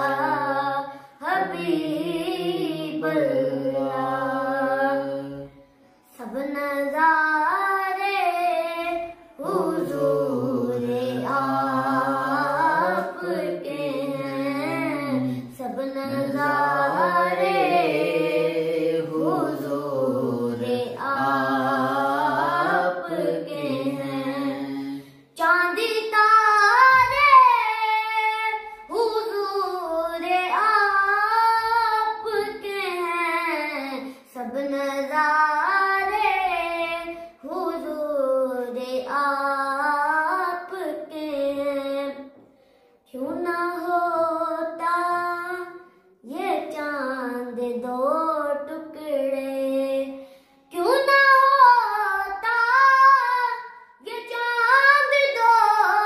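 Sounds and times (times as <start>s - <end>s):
young man singing unaccompanied: 0.0s - 5.6s, 9.4s - 24.8s.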